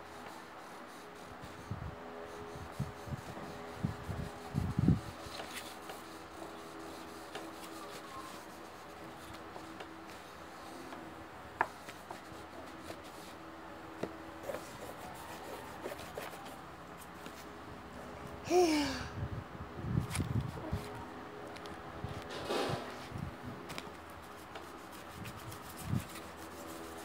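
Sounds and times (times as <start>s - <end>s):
pencils scratching on paper: 2.3s - 13.4s, 14.0s - 17.5s, 23.9s - 27.0s.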